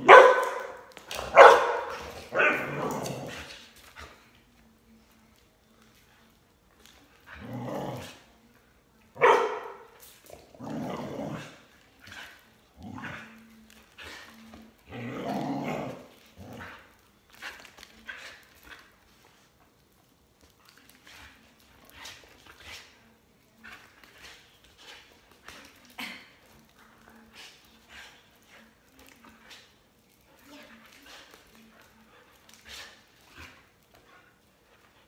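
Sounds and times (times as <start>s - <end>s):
dog growling and barking: 0.0s - 3.7s, 7.2s - 8.3s, 9.2s - 11.8s, 12.7s - 13.4s, 14.8s - 17.0s.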